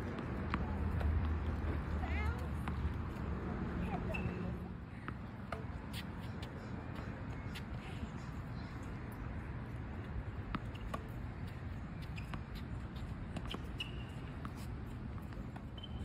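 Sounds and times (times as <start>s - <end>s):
tennis balls struck and bouncing: 10.3s - 16.0s.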